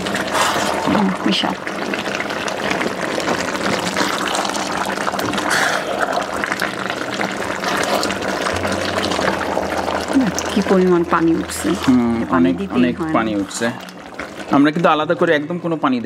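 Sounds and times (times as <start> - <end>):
curry bubbling in a pot: 0.0 - 16.0
spatula stirring wet sloshing: 7.3 - 14.9.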